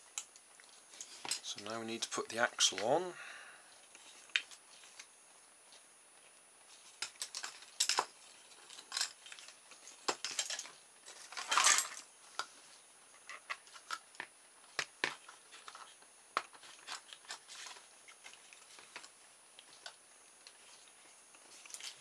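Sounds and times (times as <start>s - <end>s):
scraping rustle: 15.2s - 19.9s.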